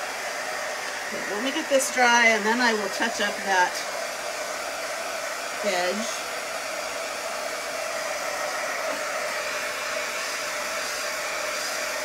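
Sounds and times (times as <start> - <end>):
hot-air dryer blowing: 0.0 - 12.0.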